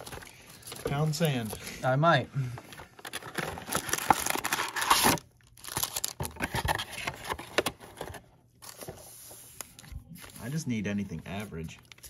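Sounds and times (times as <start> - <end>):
wrapper tearing and crinkling: 3.1 - 6.8.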